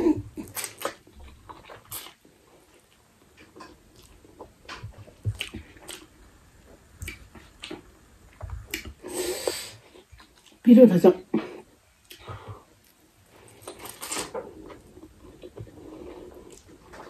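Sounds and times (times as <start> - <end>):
chewing with mouth smacks: 0.4 - 6.1, 7.0 - 9.0, 10.0 - 10.6.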